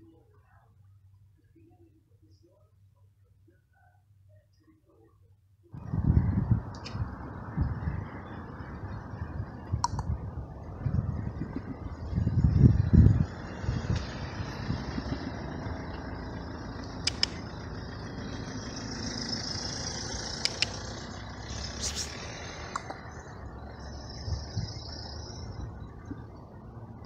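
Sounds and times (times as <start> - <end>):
vehicle engine running: 5.8 - 27.0
short sharp clicks: 16.9 - 17.4, 20.4 - 20.8.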